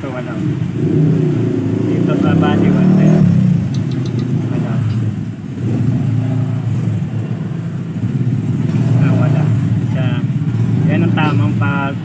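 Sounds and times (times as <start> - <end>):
faint clicks: 3.7 - 4.3.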